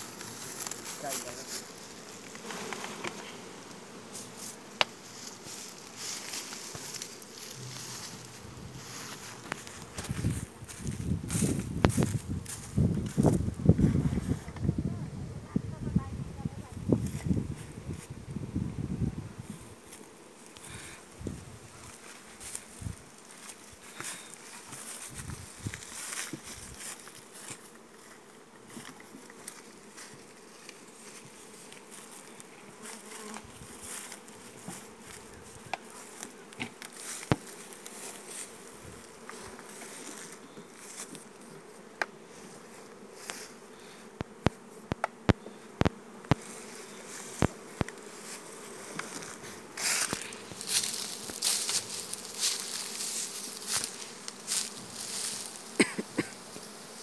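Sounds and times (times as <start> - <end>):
rustling and handling noise: 0.0 - 3.4, 4.1 - 13.4, 46.4 - 56.8
bees buzzing: 0.0 - 57.0.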